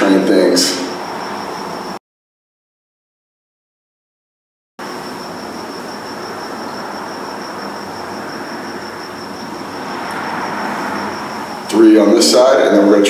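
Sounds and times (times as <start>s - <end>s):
high-pitched whine: 0.0s - 2.0s, 4.8s - 13.0s
room noise hiss: 0.0s - 2.0s, 4.8s - 13.0s.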